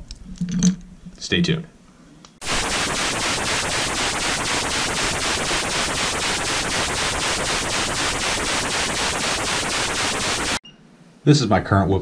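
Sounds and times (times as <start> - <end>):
fluttering static hiss: 2.4 - 10.6.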